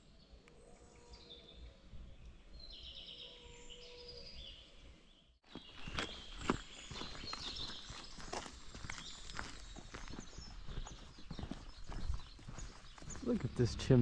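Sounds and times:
birds singing faintly: 0:00.0 - 0:14.0
footsteps on gravel: 0:05.4 - 0:14.0.

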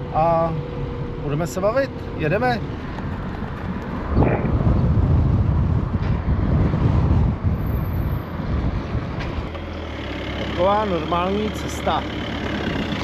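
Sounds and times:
car engine rumble: 0:00.0 - 0:13.0
wind buffeting microphone: 0:02.1 - 0:09.7.

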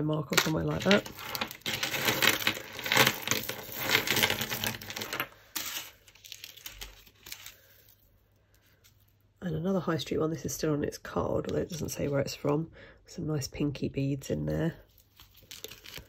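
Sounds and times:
jewellery clinking and rattling: 0:00.3 - 0:05.9.

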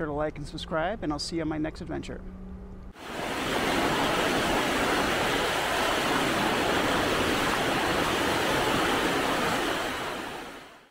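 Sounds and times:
steady rushing noise: 0:03.0 - 0:10.9.

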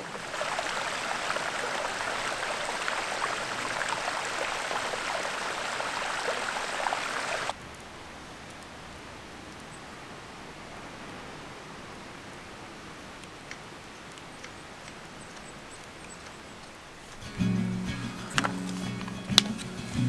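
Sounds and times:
stream babbling over stones: 0:00.0 - 0:11.1
faint steady hiss: 0:00.0 - 0:20.0.

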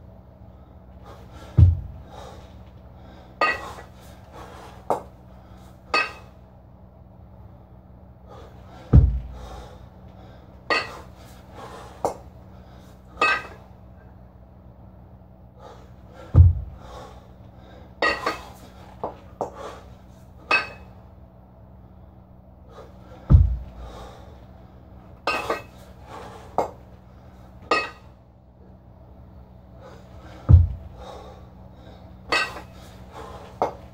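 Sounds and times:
heavy kettlebell thuds: 0:01.5 - 0:02.1, 0:08.9 - 0:09.7, 0:16.3 - 0:17.0, 0:23.2 - 0:24.1, 0:30.4 - 0:31.2
metallic kettlebell clanks: 0:03.4 - 0:03.8, 0:05.9 - 0:06.4, 0:10.7 - 0:11.1, 0:13.2 - 0:13.6, 0:18.0 - 0:18.6, 0:20.5 - 0:20.9, 0:25.2 - 0:25.8, 0:27.7 - 0:28.1, 0:32.3 - 0:32.8.

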